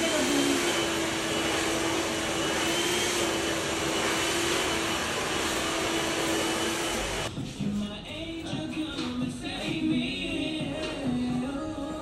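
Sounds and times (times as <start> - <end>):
blower motor rushing air: 0.0 - 7.3.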